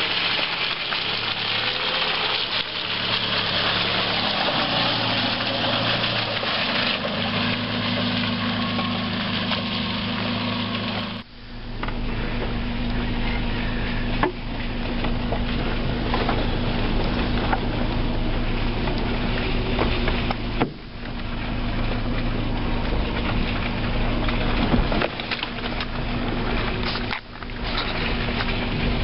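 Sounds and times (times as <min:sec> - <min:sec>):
car engine running: 0:00.0 - 0:29.0
car body knocking and rattling: 0:13.2 - 0:29.0.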